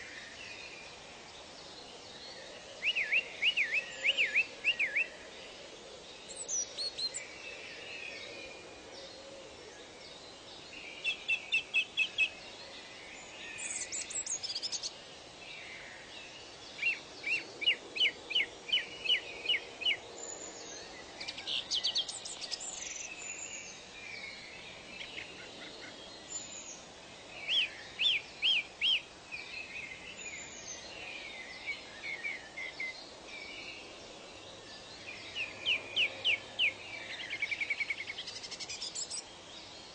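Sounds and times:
faint steady hiss: 0.0 - 39.9
songbirds chirping: 0.0 - 39.9.

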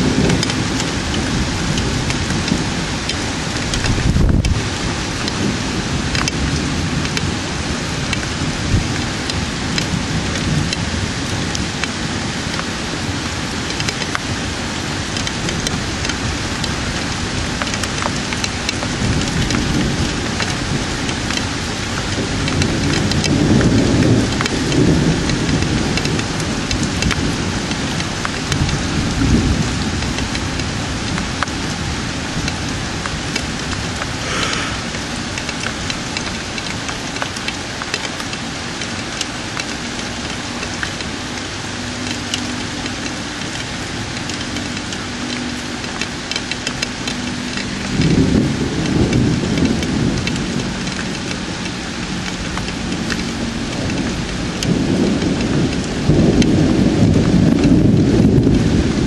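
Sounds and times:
steady rain pattering: 0.0 - 59.0
thunder rolling: 33.6 - 36.4, 47.0 - 51.5, 52.1 - 59.0.

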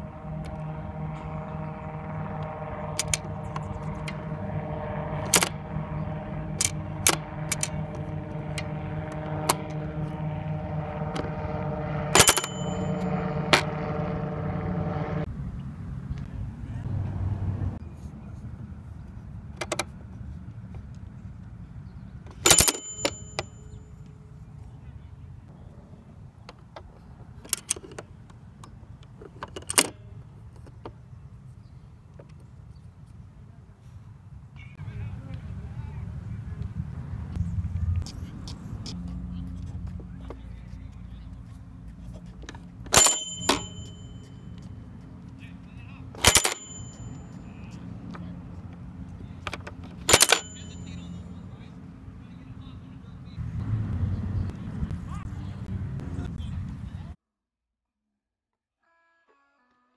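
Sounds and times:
low steady rumble: 0.0 - 19.4.

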